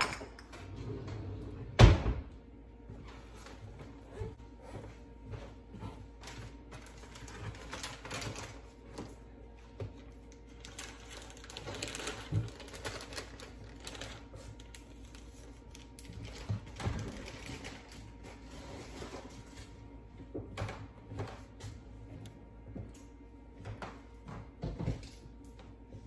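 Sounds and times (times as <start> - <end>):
kitchen items clattering: 0.0 - 2.0, 10.6 - 14.4.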